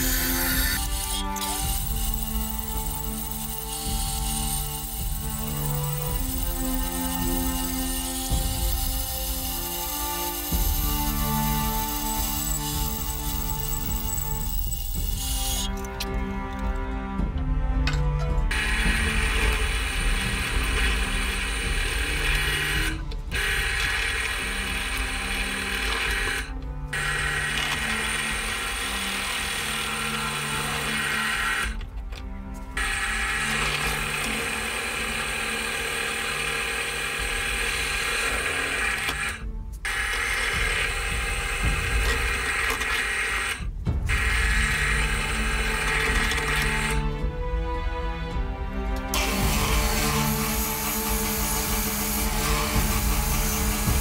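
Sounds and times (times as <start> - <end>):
drill press cutting wood: 0.0 - 16.1, 18.5 - 47.2, 49.0 - 54.0.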